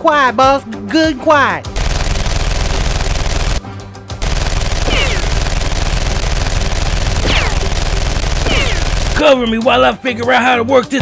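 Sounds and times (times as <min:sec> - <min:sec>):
rapid automatic gunfire: 0:01.8 - 0:03.6, 0:04.2 - 0:09.3.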